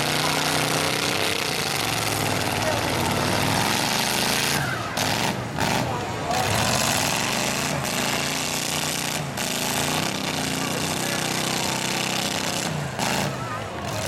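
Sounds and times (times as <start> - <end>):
loud rushing noise: 0.0 - 13.5
car engines revving hard: 0.0 - 14.0.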